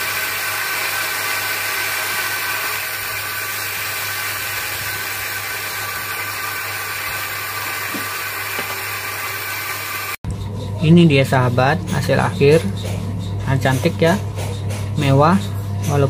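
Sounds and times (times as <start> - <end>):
bench grinder motor humming: 0.0 - 10.2.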